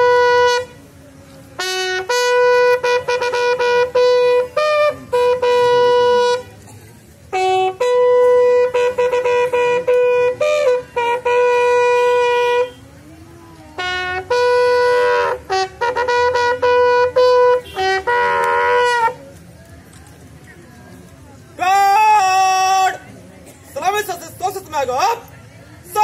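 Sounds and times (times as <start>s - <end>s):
bugle call: 1.6s - 6.5s, 7.3s - 12.8s, 13.8s - 19.2s.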